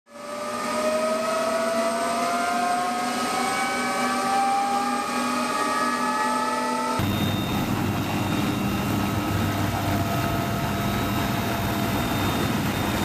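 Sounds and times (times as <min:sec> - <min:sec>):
helicopter turbine whining: 0:00.2 - 0:13.0.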